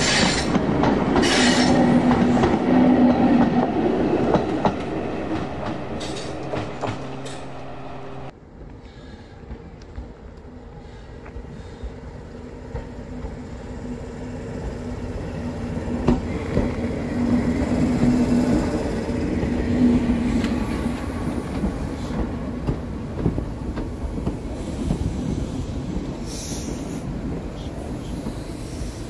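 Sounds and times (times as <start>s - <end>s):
train wheels clacking over rail joints: 0.0s - 7.6s
diesel train engine hum: 0.0s - 29.0s.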